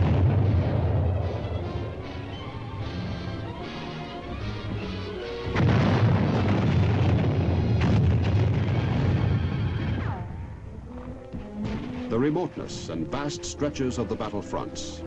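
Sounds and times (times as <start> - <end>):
sharp crack: 0.0 - 2.1, 5.4 - 10.6
artillery fire booming: 0.0 - 2.4, 5.4 - 10.6
dramatic orchestral film music: 0.5 - 5.6, 9.7 - 15.0.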